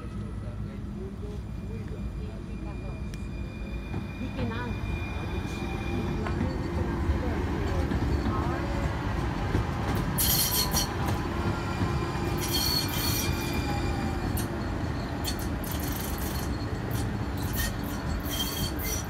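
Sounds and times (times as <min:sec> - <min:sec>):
train wheels rumbling on rail: 0:00.0 - 0:19.0
high-pitched wheel squeal: 0:10.2 - 0:19.0.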